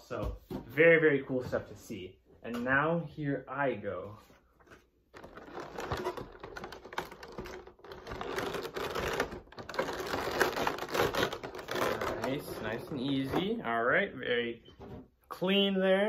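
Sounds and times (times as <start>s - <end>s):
plastic packaging crackling: 5.1s - 13.1s.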